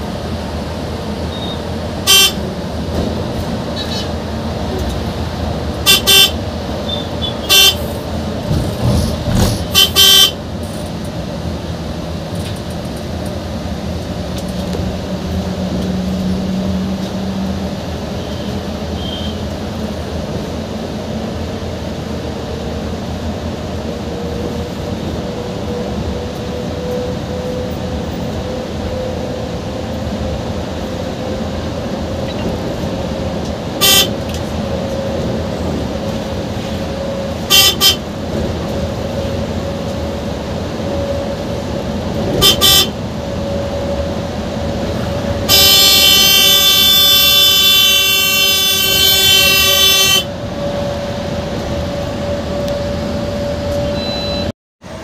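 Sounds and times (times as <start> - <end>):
bus engine and road noise: 0.0 - 55.0
bus horn: 1.3 - 2.6, 3.7 - 4.2, 5.8 - 8.1, 9.4 - 10.5, 18.2 - 19.5, 33.8 - 35.2, 36.1 - 38.2, 42.2 - 43.2, 45.0 - 51.0.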